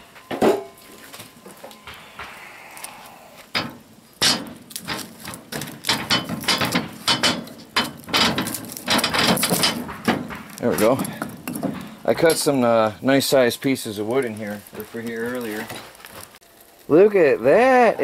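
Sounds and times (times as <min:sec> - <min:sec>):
firewood knocking on cast iron: 0:03.5 - 0:13.0.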